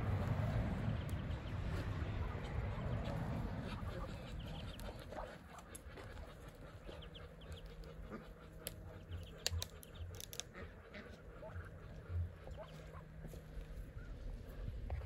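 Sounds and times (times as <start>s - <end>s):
ducklings peeping: 0.0s - 15.0s
sharp clicks: 8.6s - 10.6s.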